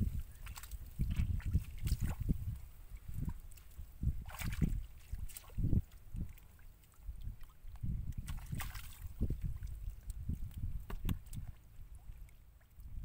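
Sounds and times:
wind buffeting microphone: 0:00.0 - 0:06.4, 0:07.0 - 0:13.0
hands splashing in muddy puddle: 0:00.4 - 0:05.9, 0:08.1 - 0:09.4.

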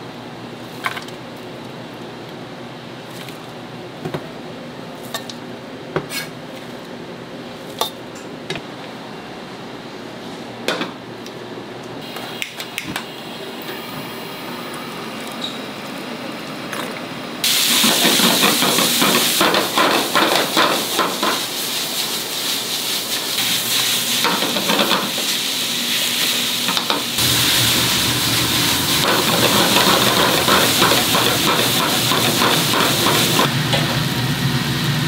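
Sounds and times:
loud hiss: 0:17.4 - 0:19.8, 0:25.1 - 0:33.5.

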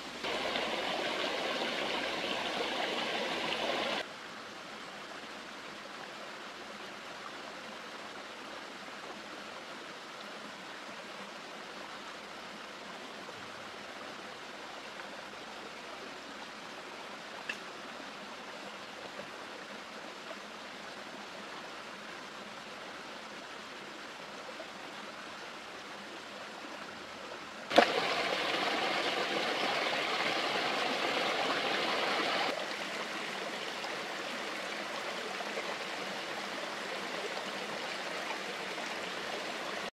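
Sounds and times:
running water rushing: 0:00.0 - 0:04.1, 0:12.4 - 0:39.9.

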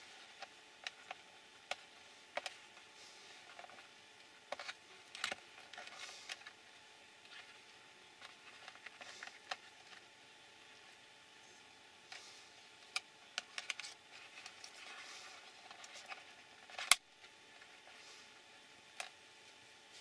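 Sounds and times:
fingers rustling on parts: 0:00.0 - 0:06.6, 0:07.2 - 0:10.1, 0:10.7 - 0:20.0
plastic parts clicking: 0:04.5 - 0:06.6, 0:12.8 - 0:15.0, 0:15.6 - 0:17.0.

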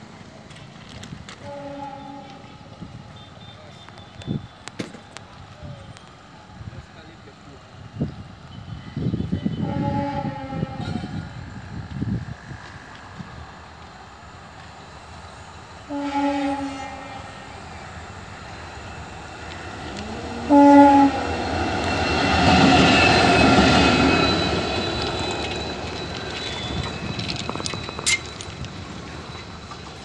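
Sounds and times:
locomotive engine and wheel noise: 0:00.0 - 0:30.0
locomotive air horn blasts: 0:01.4 - 0:04.5, 0:09.4 - 0:11.4, 0:15.9 - 0:17.6, 0:20.0 - 0:21.5.

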